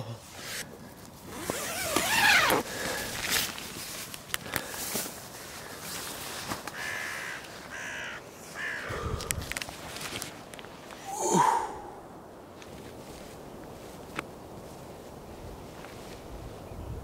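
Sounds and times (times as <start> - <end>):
man calling out: 11.0 - 12.1.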